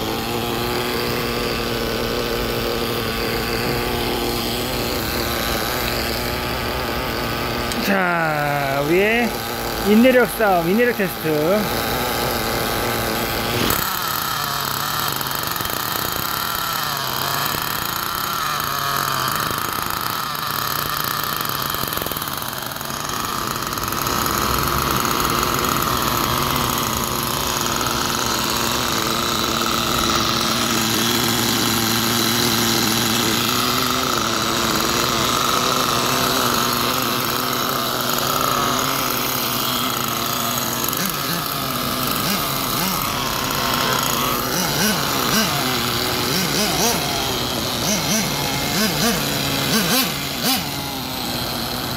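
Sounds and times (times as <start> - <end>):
small model engine idling: 0.0 - 51.9.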